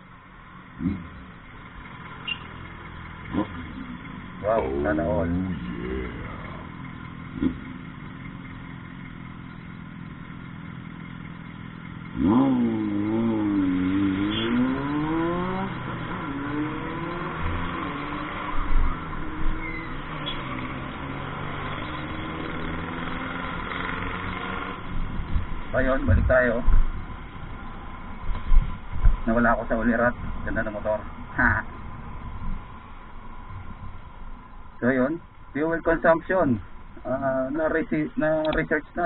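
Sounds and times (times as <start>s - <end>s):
motorcycle engine revving: 0.7s - 32.8s
low thumps: 24.9s - 27.2s, 28.2s - 29.5s.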